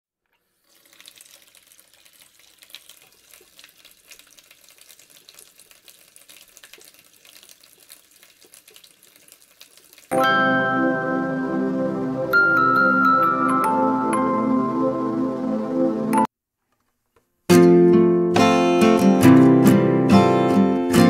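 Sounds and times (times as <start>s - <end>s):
water trickling and splashing: 0.4s - 10.2s
music: 10.1s - 16.3s, 17.5s - 21.0s.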